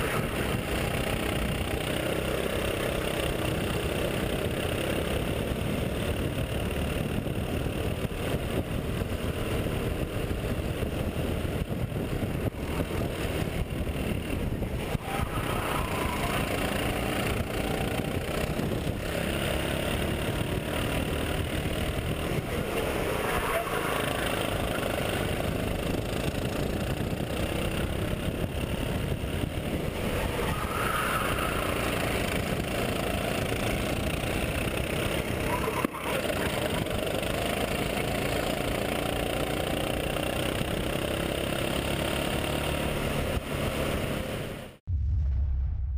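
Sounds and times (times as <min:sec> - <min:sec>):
go-kart engine racing: 0:00.0 - 0:44.8
nearby go-kart engine: 0:00.0 - 0:44.8.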